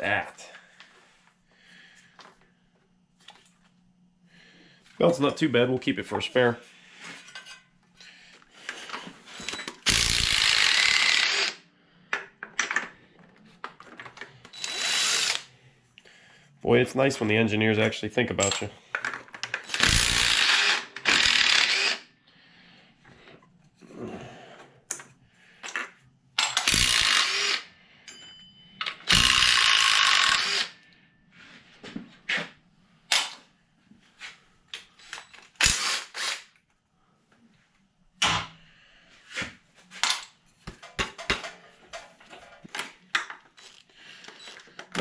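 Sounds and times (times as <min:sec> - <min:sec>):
cordless drill spinning bolts: 0:09.4 - 0:11.6, 0:14.5 - 0:15.5, 0:19.4 - 0:22.0, 0:26.4 - 0:27.7, 0:28.8 - 0:30.8, 0:35.3 - 0:36.4.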